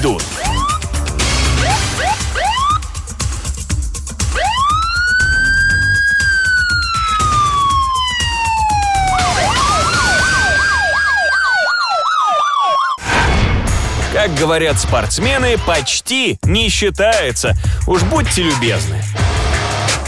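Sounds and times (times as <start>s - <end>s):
fast yelping siren: 0.2s - 0.9s, 1.5s - 3.0s, 4.3s - 13.0s
police siren wailing: 0.2s - 3.1s, 4.2s - 13.0s.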